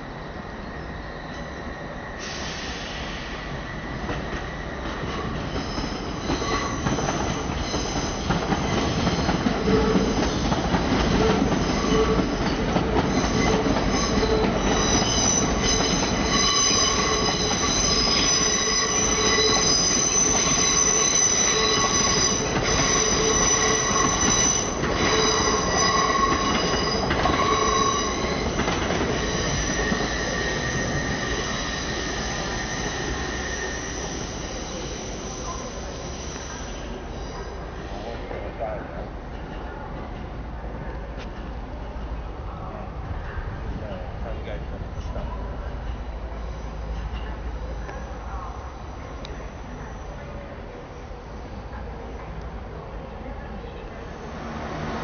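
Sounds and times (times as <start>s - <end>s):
train rumble: 0.0s - 55.0s
train wheels squealing: 0.5s - 38.3s.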